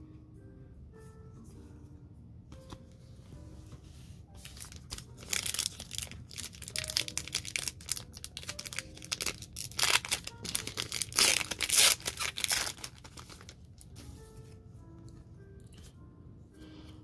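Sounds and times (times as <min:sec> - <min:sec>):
foil wrapper crinkling and tearing: 0:04.4 - 0:13.8.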